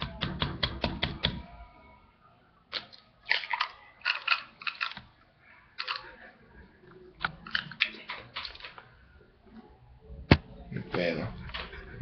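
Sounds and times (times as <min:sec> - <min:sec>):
eggshell cracking: 0:02.7 - 0:05.1.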